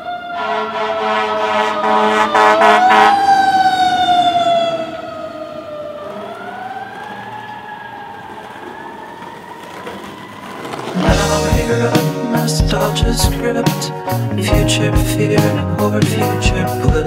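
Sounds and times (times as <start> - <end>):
siren wailing: 0.0 - 11.4.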